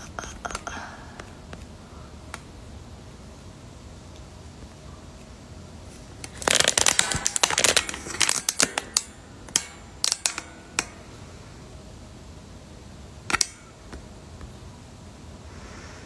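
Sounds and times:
clicks and scraping: 13.3s - 13.6s.

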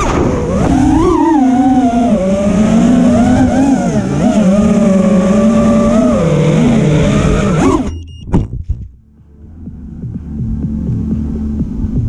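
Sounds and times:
quadcopter motors whining: 0.0s - 8.0s.

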